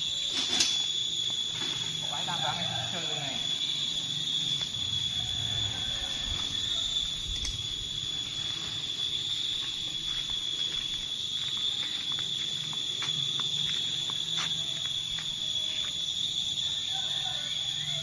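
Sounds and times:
forest insects droning: 0.0 - 18.0.

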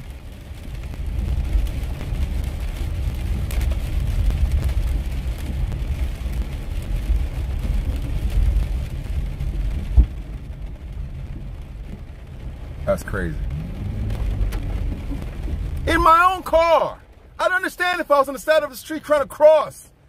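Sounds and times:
car cabin rumble: 0.1 - 17.4
short thump: 9.9 - 10.2.

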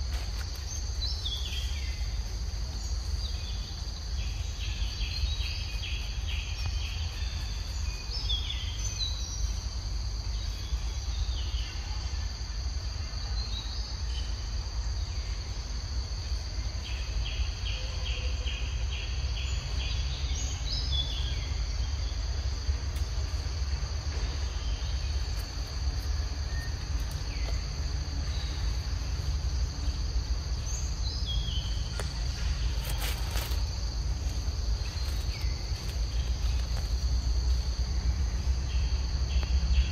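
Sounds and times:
insects droning: 0.0 - 39.9
steady low rumble: 19.6 - 39.9.

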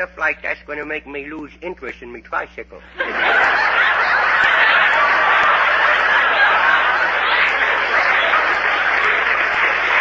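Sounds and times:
audience laughing: 2.8 - 10.0.

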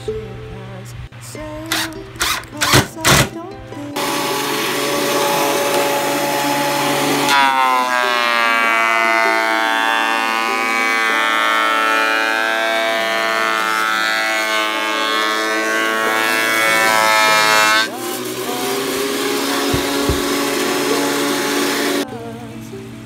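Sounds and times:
thickness planer whining: 4.0 - 22.1.

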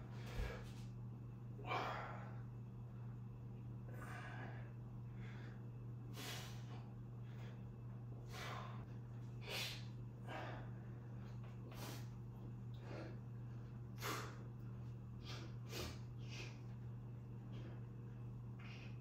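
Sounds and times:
man breathing hard: 0.0 - 0.9, 1.6 - 2.5, 3.9 - 16.8
steady low hum: 0.0 - 19.0.

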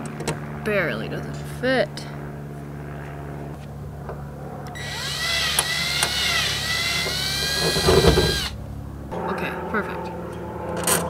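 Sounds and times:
low steady hum: 0.0 - 11.0
drill motor whining: 4.8 - 8.6.

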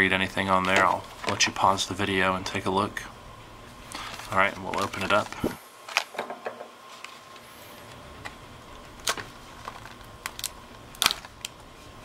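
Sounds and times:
plastic packaging crackling: 0.5 - 1.8, 3.9 - 6.2, 8.7 - 12.0.

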